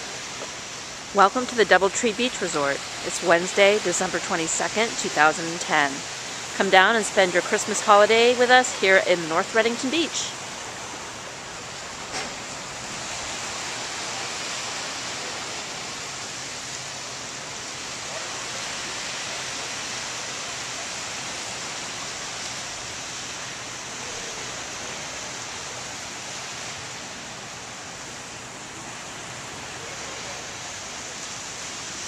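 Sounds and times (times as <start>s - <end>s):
gentle surf on sandy beach: 0.0s - 32.0s.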